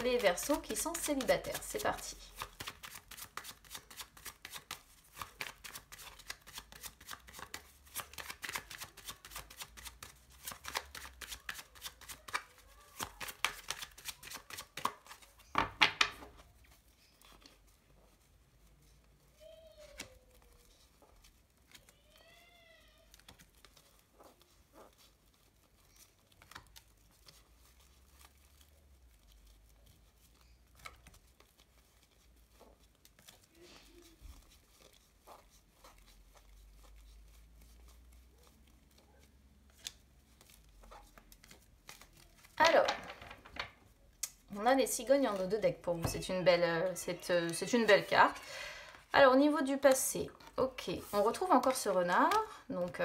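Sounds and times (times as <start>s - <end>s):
cards shuffling: 0.0s - 18.4s, 19.3s - 22.0s, 23.0s - 48.9s
cards tapping on table: 14.8s - 16.3s.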